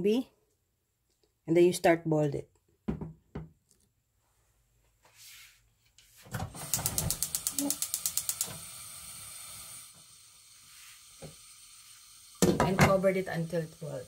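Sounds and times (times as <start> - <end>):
gas flame hissing: 6.4 - 14.0
stove igniter clicking: 6.6 - 8.7.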